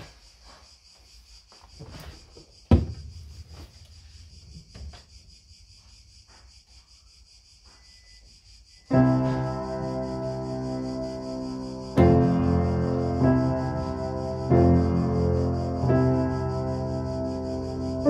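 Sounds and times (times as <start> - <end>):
wooden piano cover knock: 2.7 - 3.1.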